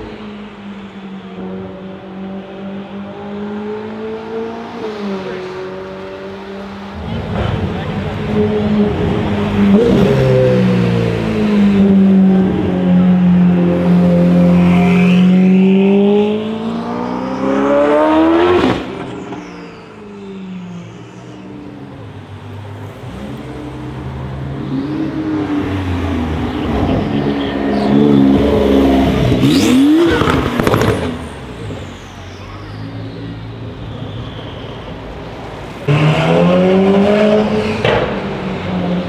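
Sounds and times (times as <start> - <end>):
quiet traffic: 0.0 - 39.0
sports car engine accelerating: 1.3 - 31.9, 35.5 - 39.0
car engine revving: 1.4 - 32.6, 35.3 - 39.0.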